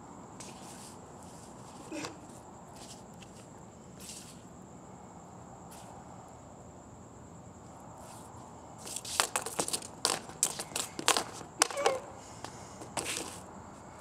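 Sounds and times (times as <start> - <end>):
crickets trilling: 0.0 - 14.0
hoop clacking on concrete: 8.8 - 13.4
boots scraping on concrete: 8.9 - 13.5.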